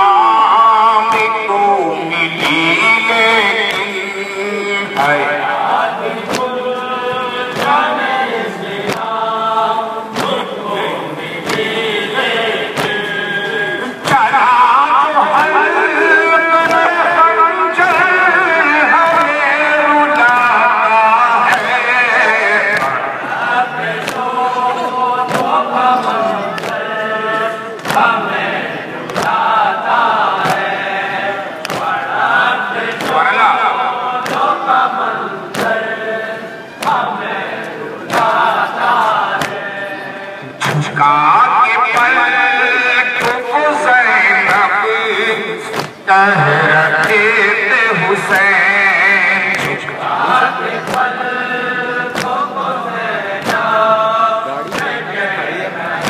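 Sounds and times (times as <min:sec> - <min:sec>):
men chanting in unison: 0:00.0 - 0:56.0
hands beating on chests: 0:12.7 - 0:13.2, 0:15.2 - 0:18.4, 0:31.6 - 0:33.4, 0:41.8 - 0:43.5, 0:44.4 - 0:46.0, 0:49.5 - 0:50.0, 0:52.1 - 0:52.5, 0:53.4 - 0:53.8
sharp chest slaps: 0:12.8 - 0:13.0, 0:27.8 - 0:28.2, 0:31.6 - 0:32.0, 0:34.2 - 0:34.5, 0:45.7 - 0:46.0, 0:50.8 - 0:51.2, 0:52.1 - 0:52.4, 0:53.4 - 0:53.7, 0:54.7 - 0:55.0.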